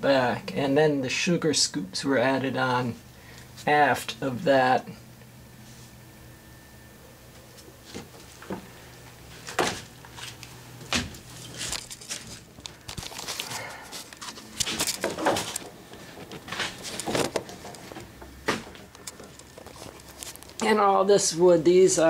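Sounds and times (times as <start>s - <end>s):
faint low hum: 0.0s - 22.0s
knocks and scuffs of handling things: 9.3s - 20.6s.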